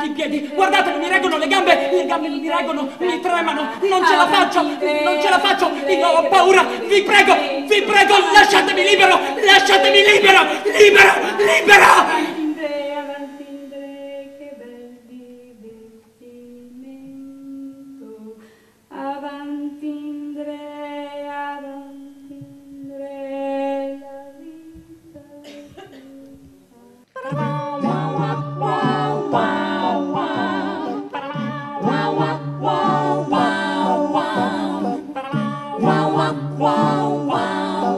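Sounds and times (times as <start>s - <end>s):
a cappella vocal group: 0.0s - 37.9s.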